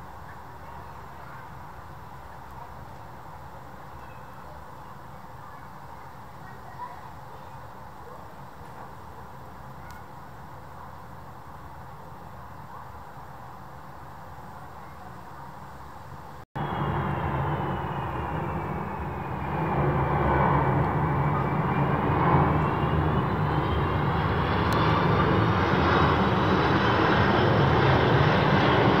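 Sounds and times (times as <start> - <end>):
jet plane passing overhead: 16.6 - 29.0.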